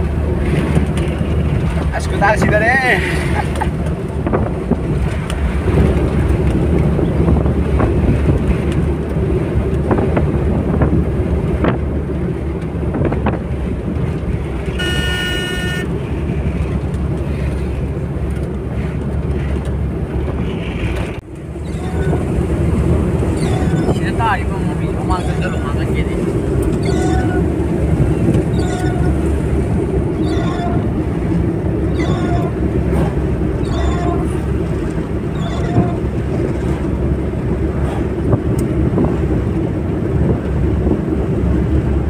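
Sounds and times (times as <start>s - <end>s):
engine and tyre rumble: 0.0s - 42.0s
wind noise: 0.0s - 42.0s
brief beep: 14.8s - 15.9s.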